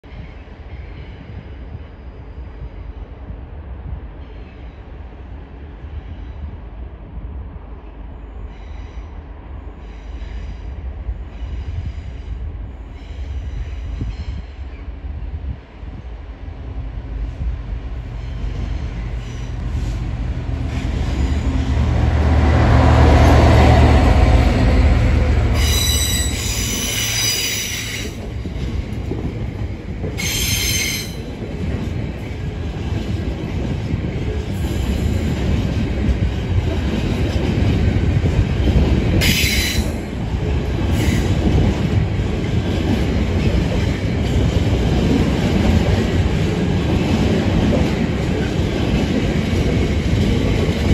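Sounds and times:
diesel locomotive engine drone: 0.0s - 50.9s
high-pitched wheel squeals: 25.6s - 28.2s.

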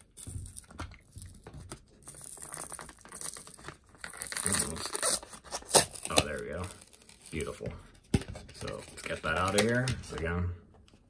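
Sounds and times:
paper tearing: 2.1s - 7.5s.

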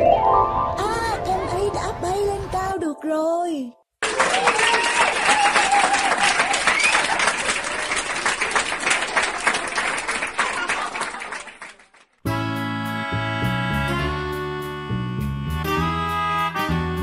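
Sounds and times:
crowd clapping and cheering: 4.0s - 12.2s.

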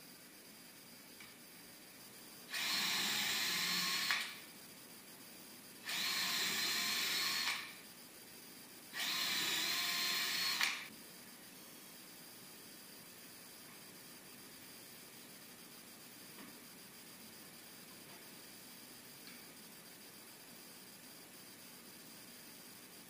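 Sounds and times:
cordless drill running: 2.5s - 4.4s, 5.8s - 7.7s, 9.0s - 10.9s.

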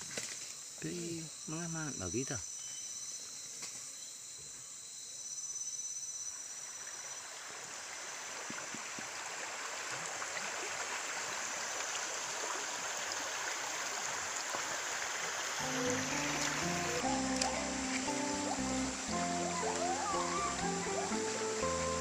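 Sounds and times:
insects buzzing: 0.0s - 22.0s
stream running over rocks: 6.5s - 22.0s.

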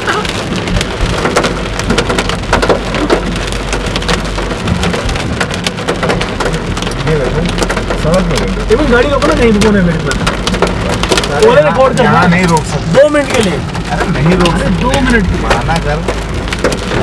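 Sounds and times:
hail clattering on car roof: 0.0s - 17.0s.

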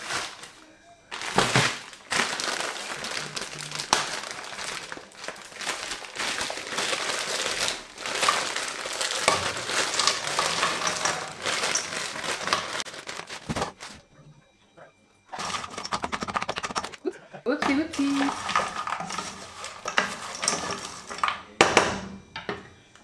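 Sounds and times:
plastic bag crinkling: 0.0s - 14.0s, 15.3s - 17.0s, 17.9s - 21.4s
food pieces dropping into pan: 5.8s - 13.8s.

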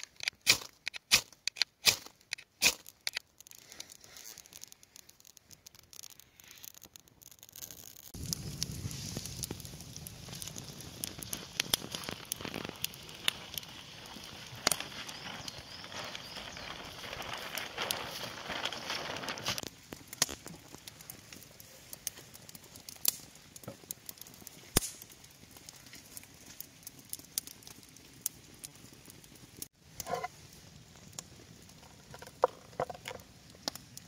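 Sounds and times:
rushing noise with crackles: 3.2s - 34.0s.

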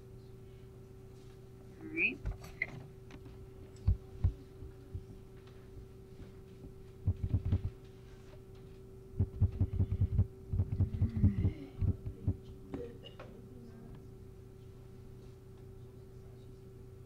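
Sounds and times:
steady electrical hum: 0.0s - 17.0s.

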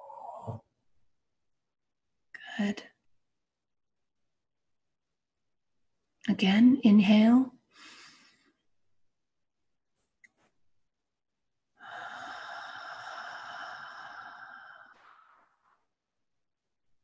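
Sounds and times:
woman breathing out slowly: 11.8s - 15.8s.

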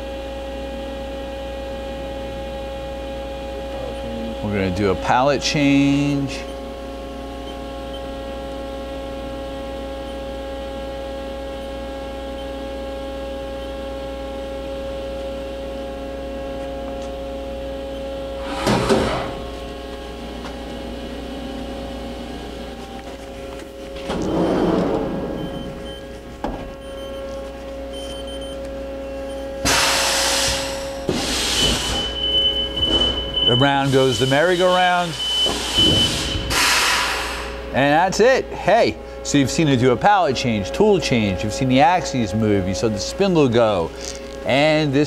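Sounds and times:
machine hum with steady tones: 0.0s - 45.0s
air hiss: 29.6s - 32.0s, 35.5s - 37.6s.

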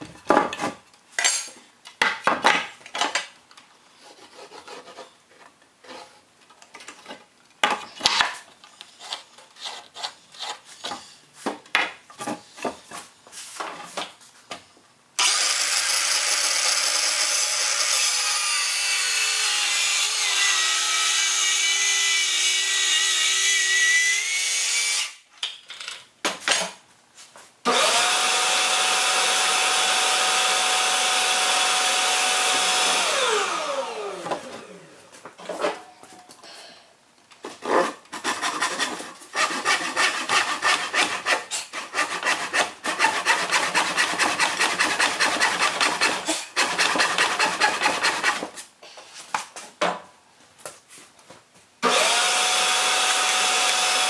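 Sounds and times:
steel square scraping wood: 8.0s - 11.0s, 37.5s - 48.6s
circular saw cutting wood: 15.2s - 25.2s, 27.7s - 35.0s, 37.8s - 48.5s, 51.8s - 54.0s
shop vacuum motor: 27.7s - 35.0s, 51.8s - 54.0s.

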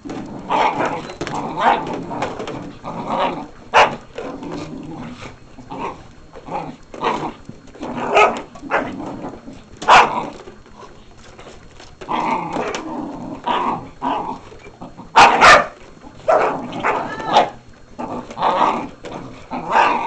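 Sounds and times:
dogs growling: 0.0s - 20.0s
dogs barking sharply: 3.7s - 4.1s, 8.0s - 9.0s, 9.8s - 10.2s, 15.1s - 17.6s.

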